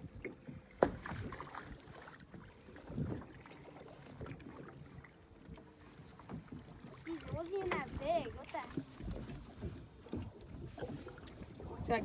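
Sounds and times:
water slapping against boat: 0.0s - 12.0s
wind on microphone: 2.9s - 3.4s, 6.6s - 12.0s.

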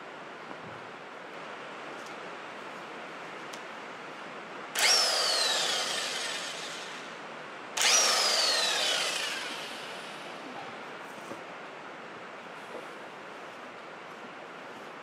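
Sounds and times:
cordless power tool whining: 4.8s - 7.1s, 7.8s - 10.4s.

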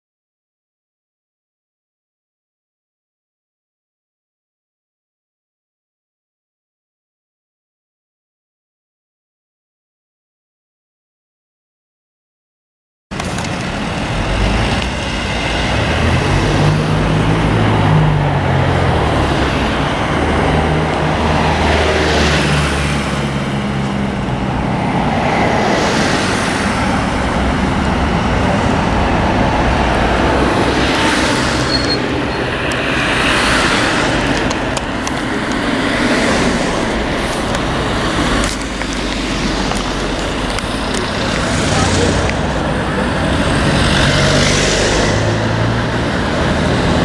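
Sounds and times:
cars driving past: 13.2s - 47.0s.

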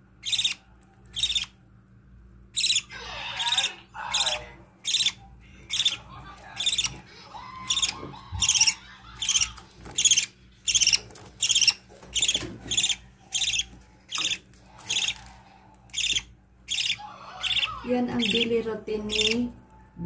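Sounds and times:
bird chicks begging cheeps: 2.6s - 15.2s, 15.9s - 18.5s.

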